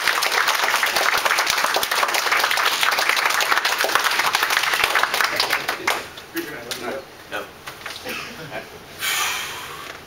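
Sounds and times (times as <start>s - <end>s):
audience applauding: 0.0s - 6.1s.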